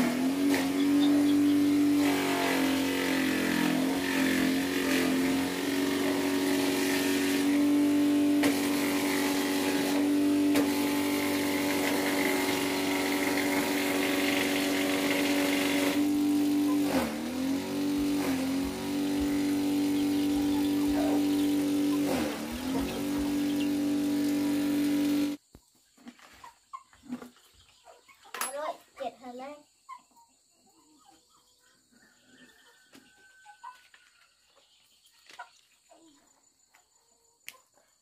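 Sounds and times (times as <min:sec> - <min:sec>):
small engine running: 0:00.0 - 0:25.4.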